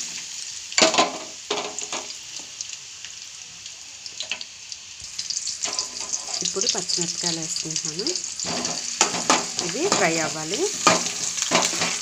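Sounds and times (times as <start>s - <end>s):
onions sizzling in hot oil: 0.0s - 12.0s.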